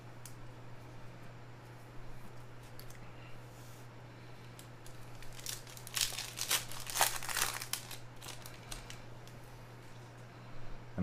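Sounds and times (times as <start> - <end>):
low electrical hum: 0.0 - 11.0
foil wrapper crinkling: 4.6 - 9.4.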